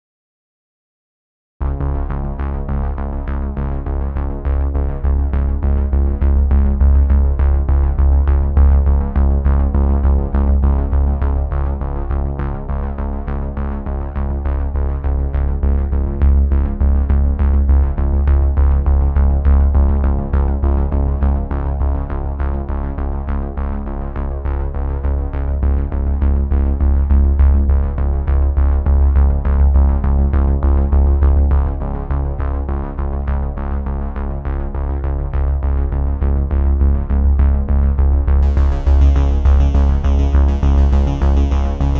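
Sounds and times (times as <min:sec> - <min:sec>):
deep bass: 0:01.6 - 0:41.9
music with steady beat: 0:38.3 - 0:41.9.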